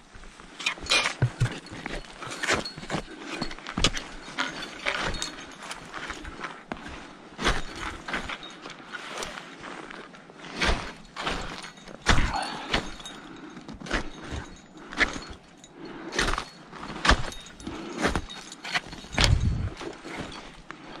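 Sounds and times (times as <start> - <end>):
footsteps scuffing on rock: 1.1 - 2.8.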